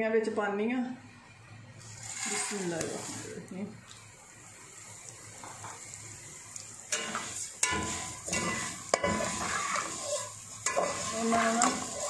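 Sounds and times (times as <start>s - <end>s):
metal spoon scraping a pot: 1.8s - 3.4s, 6.9s - 12.0s.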